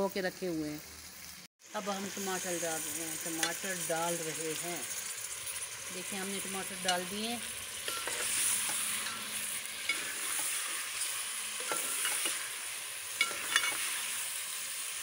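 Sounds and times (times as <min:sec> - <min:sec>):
chicken sizzling in a pot: 0:00.0 - 0:15.0
metal ladle scraping a pot: 0:06.8 - 0:14.2.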